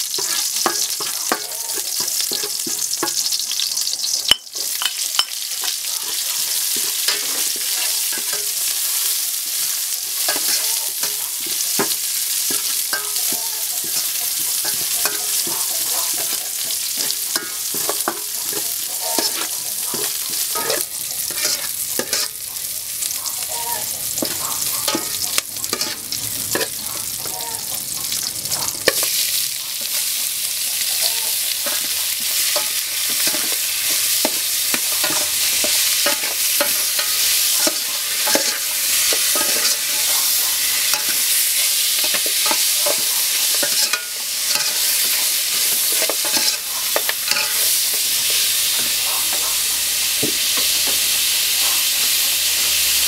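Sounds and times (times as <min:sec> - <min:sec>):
aromatics sizzling in oil: 0:00.0 - 0:53.0
metal ladle scraping a pot: 0:00.1 - 0:03.4, 0:04.3 - 0:22.4, 0:23.7 - 0:27.2, 0:31.4 - 0:49.0.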